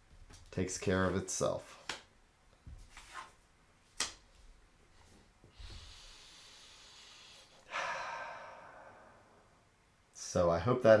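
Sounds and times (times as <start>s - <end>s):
man breathing: 5.4s - 9.6s.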